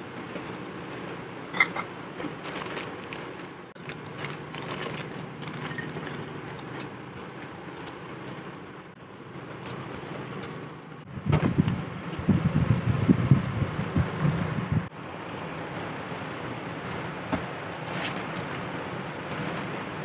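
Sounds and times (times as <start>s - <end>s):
induction cooktop hum: 0.0s - 20.0s
plastic packets crinkling and tearing: 2.2s - 8.4s.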